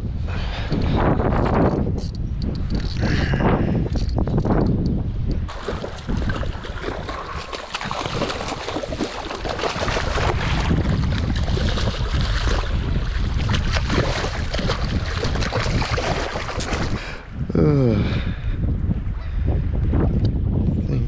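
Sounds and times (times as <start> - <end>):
wind on microphone: 0.0 - 21.0
water splashing: 5.5 - 17.3.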